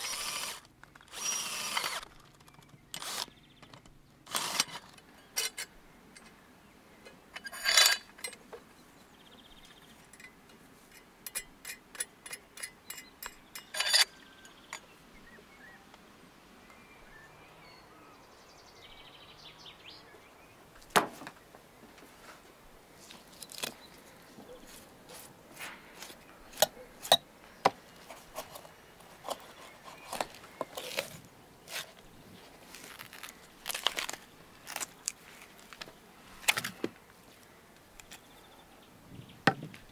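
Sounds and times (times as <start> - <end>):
metal clinks and knocks: 7.4 - 8.5, 10.1 - 14.2.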